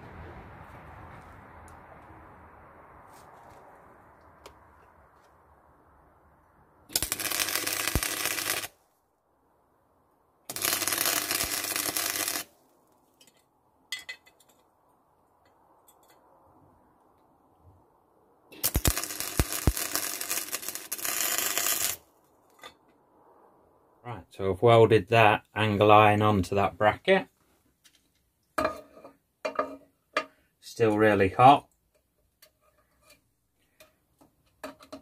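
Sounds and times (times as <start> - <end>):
welding arc crackling: 6.9 - 8.8, 10.5 - 12.5, 18.6 - 22.1.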